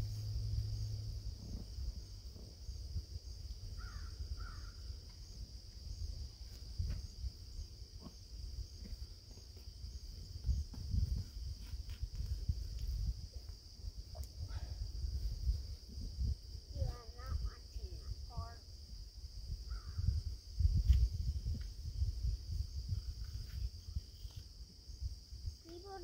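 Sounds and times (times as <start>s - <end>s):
low rumble: 0.0s - 4.4s
insect drone: 0.0s - 26.0s.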